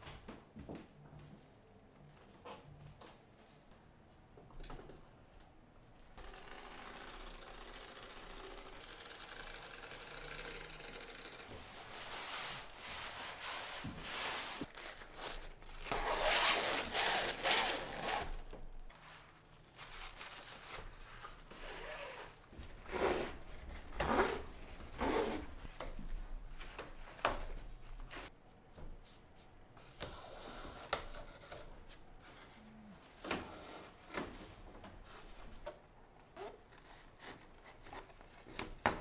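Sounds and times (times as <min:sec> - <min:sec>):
fabric rustling and rubbing: 0:11.6 - 0:17.7, 0:18.9 - 0:23.5.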